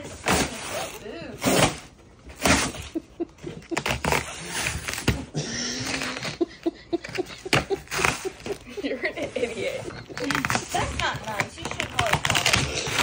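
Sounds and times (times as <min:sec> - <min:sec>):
duct tape ripping: 0:10.1 - 0:13.0.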